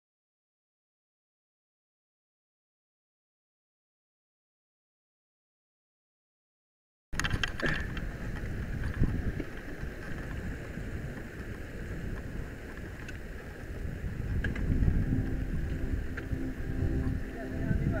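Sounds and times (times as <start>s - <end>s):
bike rattling over bumps: 7.2s - 15.2s
wind buffeting microphone: 7.2s - 18.0s.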